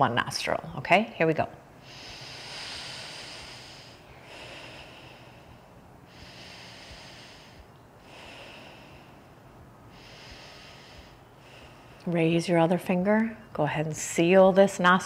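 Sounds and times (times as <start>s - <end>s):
breathing through nostril: 1.8s - 12.0s.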